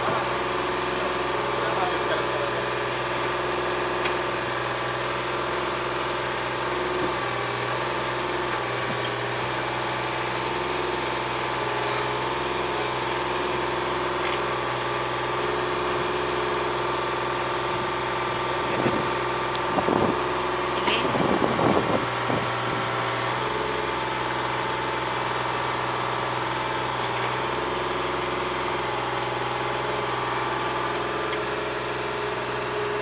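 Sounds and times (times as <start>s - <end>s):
excavator diesel engine running: 0.0s - 33.0s.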